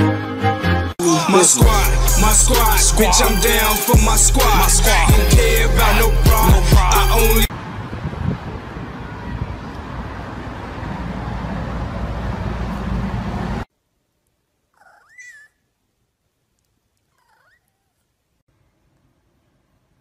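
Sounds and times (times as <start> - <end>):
bass-heavy music: 0.0 - 7.5
cat meowing: 17.2 - 18.0.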